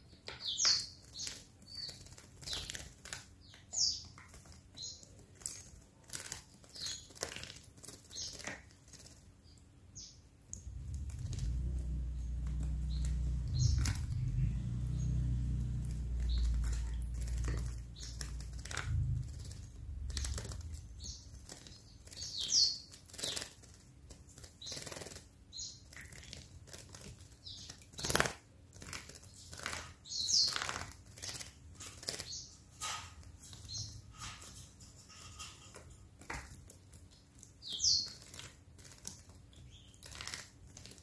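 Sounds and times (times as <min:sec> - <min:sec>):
bird wings fluttering and splashing: 0:00.5 - 0:09.3, 0:10.6 - 0:41.0
low rumble: 0:10.6 - 0:21.5
high bird chirps: 0:10.8 - 0:23.4.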